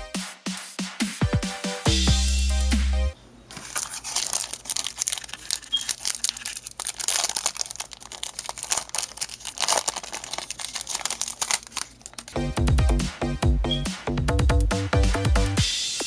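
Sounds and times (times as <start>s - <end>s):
foil wrapper crinkling and tearing: 3.5s - 12.4s.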